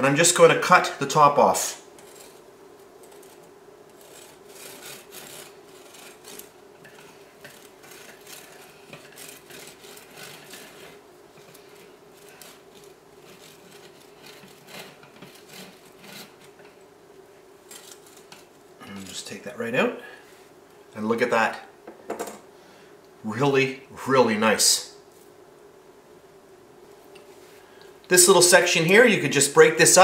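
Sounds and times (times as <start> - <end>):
steady low hum: 0.0 - 30.0
serrated knife sawing through cake: 2.0 - 2.4, 3.0 - 16.6.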